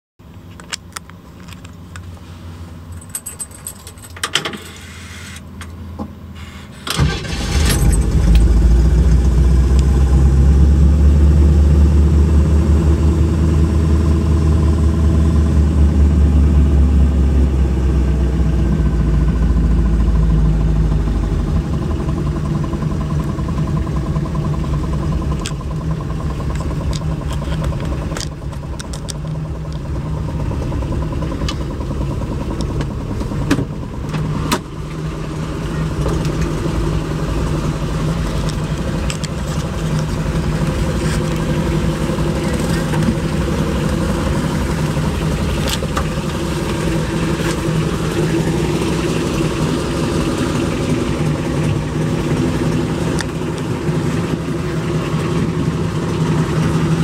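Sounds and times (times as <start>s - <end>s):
car engine cranking and idling: 0.2s - 57.0s
keys jangling in ignition: 2.9s - 4.9s, 7.0s - 8.5s.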